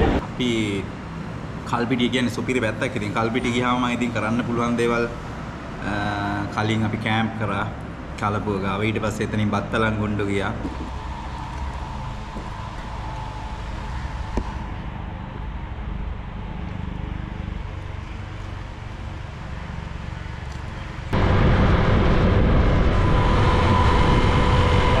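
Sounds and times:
low hum: 0:00.0 - 0:25.0
wind rush on microphone: 0:10.5 - 0:15.6, 0:21.1 - 0:25.0.

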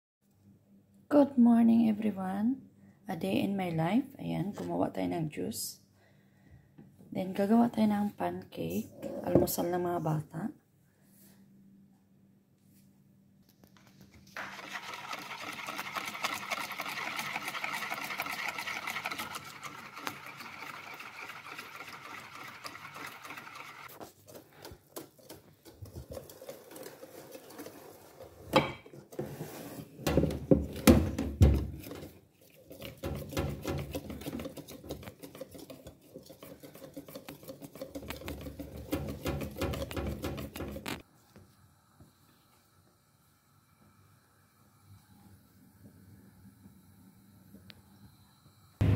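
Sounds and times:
wire whisk beating batter in bowl: 0:14.3 - 0:28.4, 0:30.5 - 0:41.0
knocks and clatter: 0:37.8 - 0:41.0.

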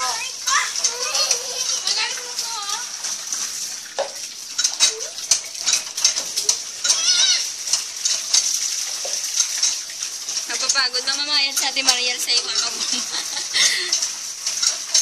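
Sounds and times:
water splashing in a tub: 0:00.0 - 0:15.0
child squealing: 0:06.8 - 0:07.5.

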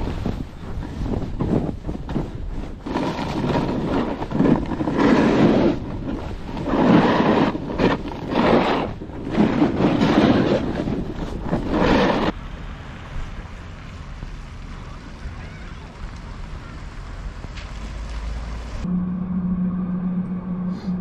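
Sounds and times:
skis scraping packed snow: 0:00.0 - 0:12.4, 0:13.2 - 0:18.9
wind rushing over microphone: 0:00.0 - 0:12.4.

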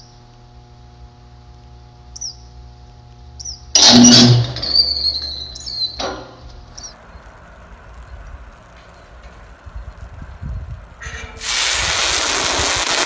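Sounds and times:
electrical hum: 0:00.0 - 0:13.0
high whine: 0:00.0 - 0:13.0
electric arc crackling: 0:06.6 - 0:13.0.

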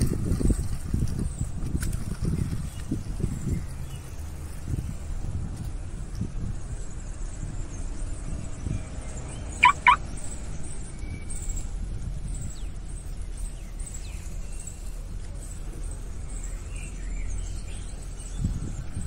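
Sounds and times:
short high calls: 0:09.6 - 0:10.0.

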